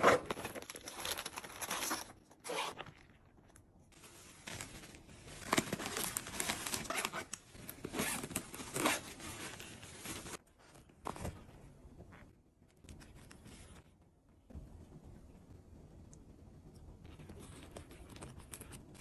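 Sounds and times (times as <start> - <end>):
plastic bags rustling: 4.0 - 10.4.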